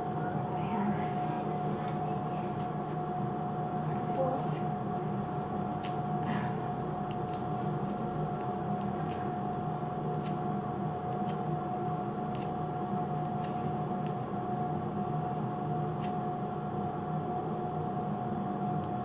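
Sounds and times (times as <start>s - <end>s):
steady hum: 0.0s - 19.0s
sticky wax clicks: 7.0s - 9.3s, 10.0s - 10.4s, 11.1s - 15.2s.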